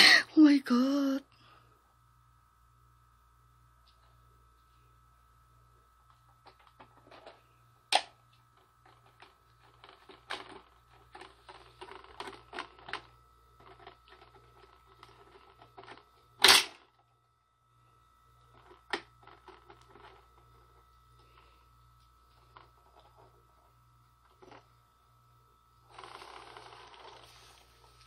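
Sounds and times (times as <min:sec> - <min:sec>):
toy motor hum: 0:25.8 - 0:27.7.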